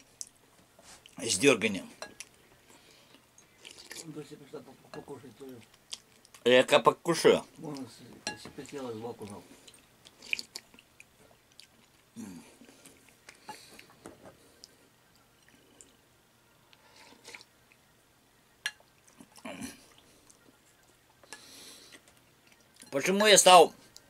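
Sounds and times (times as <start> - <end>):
person chewing: 2.0 - 4.1, 5.5 - 6.4, 8.6 - 16.0, 16.7 - 17.8, 18.7 - 22.9.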